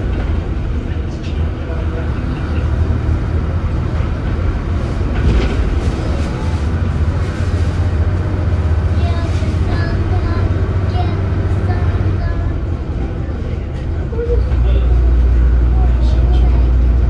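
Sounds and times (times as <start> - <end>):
bus body rattles: 0.0 - 17.0
diesel bus engine droning: 0.0 - 17.0.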